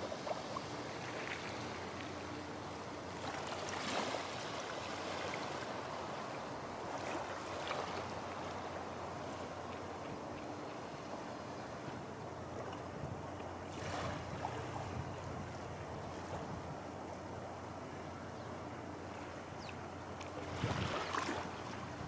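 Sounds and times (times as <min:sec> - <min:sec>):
small waves washing onto beach: 0:00.0 - 0:17.3, 0:19.0 - 0:22.0
wind on microphone: 0:12.9 - 0:16.8, 0:20.4 - 0:22.0.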